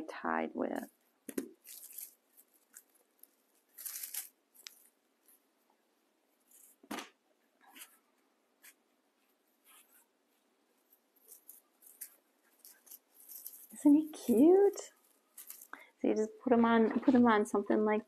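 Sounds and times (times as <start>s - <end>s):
rustling of raffia and fabric: 0.8s - 5.6s, 7.6s - 16.0s.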